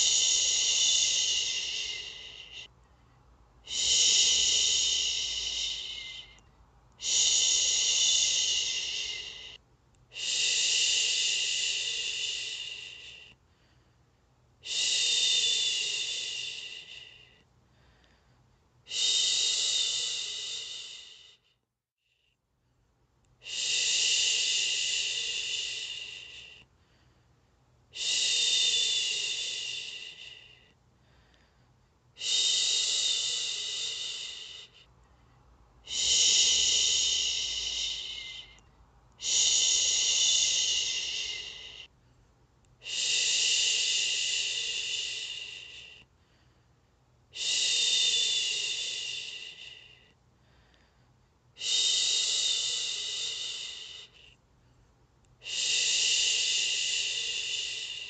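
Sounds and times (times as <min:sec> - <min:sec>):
woman shushing: 0:00.0 - 0:02.7, 0:03.7 - 0:06.4, 0:07.0 - 0:13.2, 0:35.8 - 0:38.6, 0:39.2 - 0:41.9.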